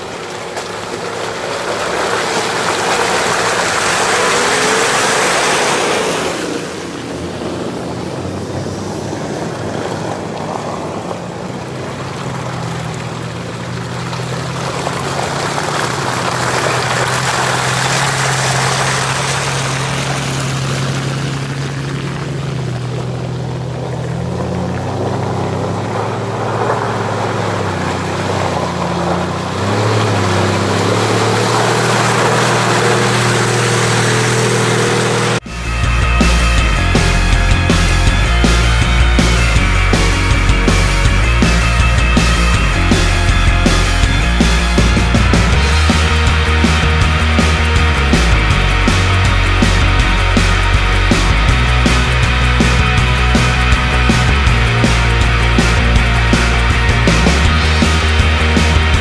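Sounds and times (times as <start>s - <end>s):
suv engines droning: 0.0s - 59.0s
tyres splashing through water: 0.0s - 59.0s.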